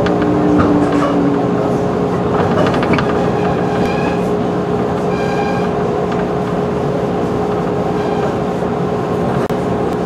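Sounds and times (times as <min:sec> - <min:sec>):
rail-joint clicks: 0:00.0 - 0:04.3
constant hum: 0:00.0 - 0:10.0
train wheels rumbling on rails: 0:00.0 - 0:10.0.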